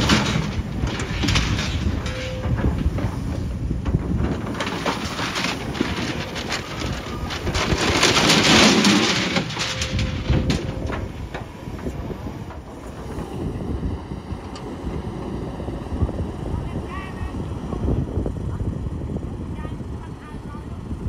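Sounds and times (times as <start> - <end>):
bucket scraping dirt and concrete: 0.0 - 12.2
excavator diesel engine running: 0.0 - 21.0.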